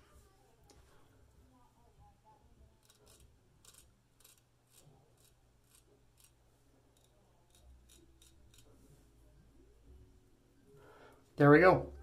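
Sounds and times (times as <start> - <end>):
razor scraping through whiskers: 2.8 - 8.8.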